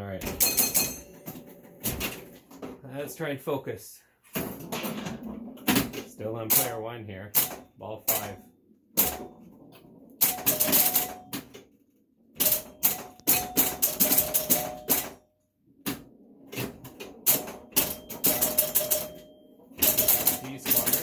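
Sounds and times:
pinball machine clicking: 4.6 - 8.4, 9.0 - 11.7, 12.4 - 15.2, 15.8 - 21.0.

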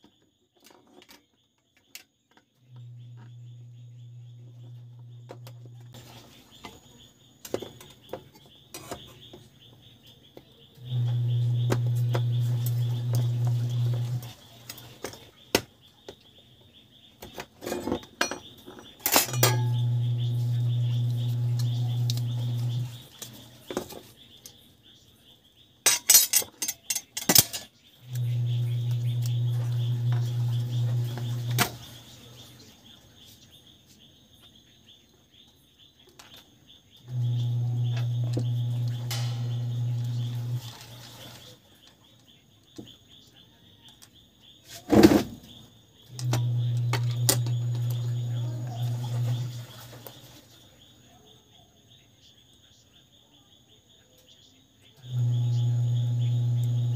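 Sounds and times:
steady low hum: 2.6 - 7.2, 8.4 - 14.6, 19.2 - 23.6, 28.0 - 33.0, 37.1 - 41.5, 45.4 - 50.2, 55.0 - 56.9
faint high whine: 19.0 - 23.6, 37.0 - 41.6, 45.4 - 51.3, 52.0 - 56.9.

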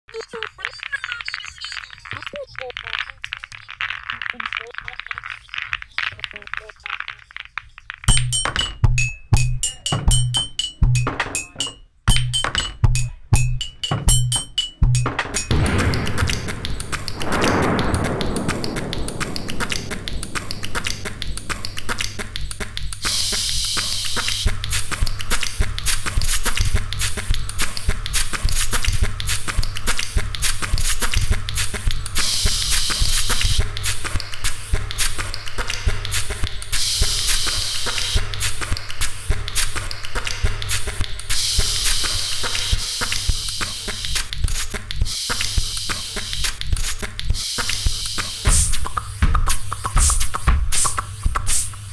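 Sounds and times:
fast clicks and taps: 0.2 - 51.9
falling swoosh: 15.5 - 23.3
steady low hum: 15.5 - 32.0
hissing bursts: 15.5 - 51.9.

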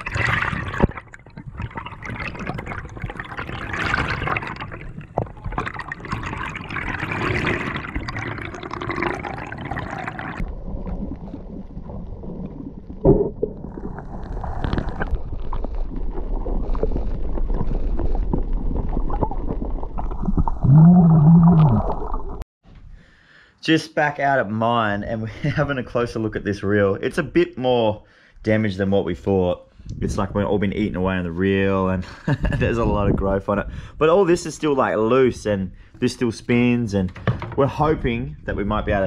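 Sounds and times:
muffled hum of bubbles: 0.0 - 22.4
underwater rushing and bubbling: 0.0 - 22.5.

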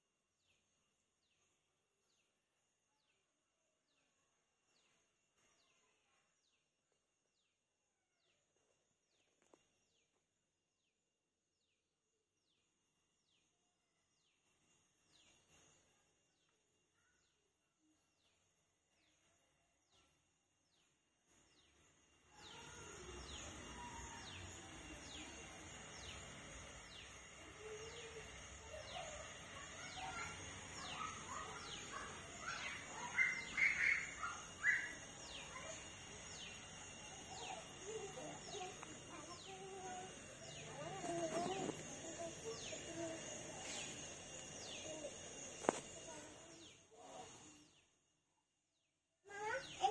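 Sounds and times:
outdoor noise: 0.0 - 49.9.

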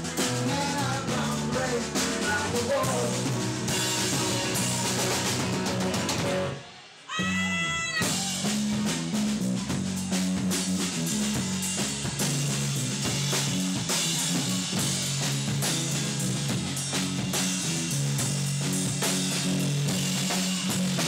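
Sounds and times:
rock band playing: 0.0 - 21.0.

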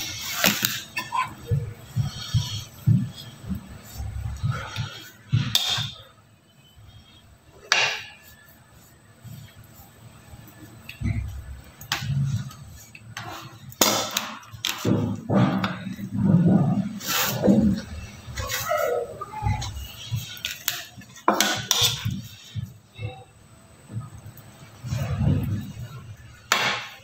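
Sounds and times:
spatula scraping and handling: 6.9 - 22.8.

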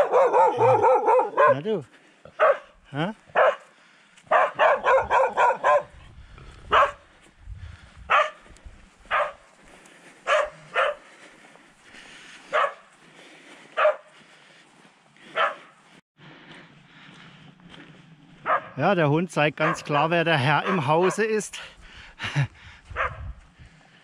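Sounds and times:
dog barking: 0.0 - 3.7, 4.3 - 6.0, 6.7 - 7.0, 8.1 - 8.4, 9.1 - 9.5, 10.2 - 11.0, 12.5 - 12.9, 13.8 - 14.1, 15.3 - 15.7, 18.4 - 18.8, 19.6 - 21.3, 23.0 - 23.2.

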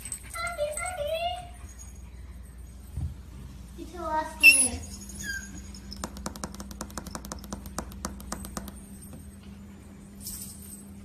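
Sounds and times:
faint squeak: 4.4 - 5.8
puppy claws clicking on wood floor: 6.0 - 8.9.

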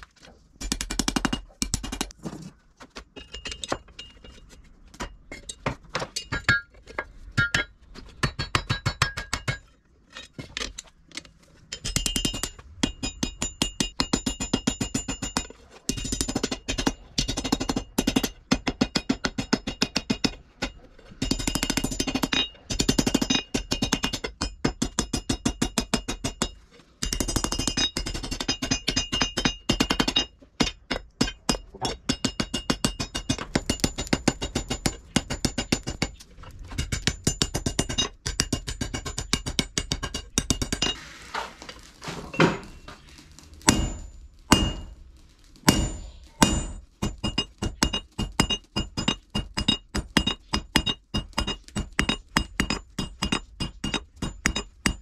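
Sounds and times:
hammer striking steel on anvil: 7.4 - 9.7, 11.7 - 36.1, 36.8 - 41.0, 43.7 - 45.0, 45.7 - 55.0.

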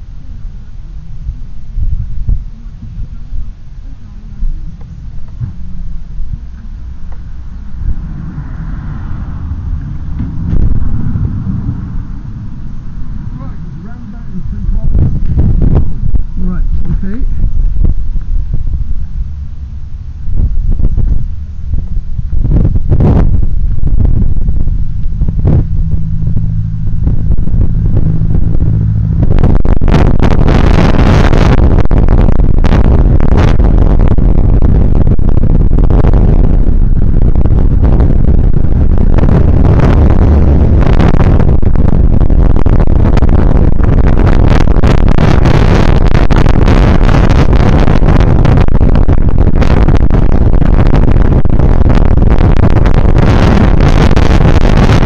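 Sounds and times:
low steady hum: 0.0 - 55.0
wind buffeting microphone: 0.0 - 55.0
road traffic passing: 2.6 - 52.0.

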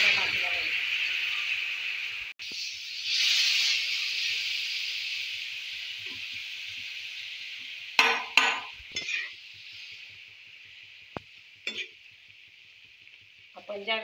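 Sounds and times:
beans sizzling in oil: 0.0 - 14.0
steel spatula scraping a pan: 8.4 - 9.4, 11.6 - 12.0.

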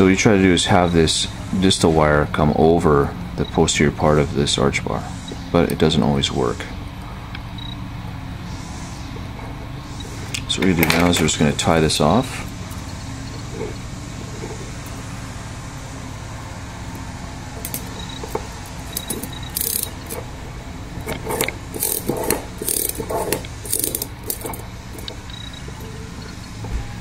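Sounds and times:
steady low hum: 0.0 - 27.0
metal forceps clicking and scraping: 16.9 - 26.7.

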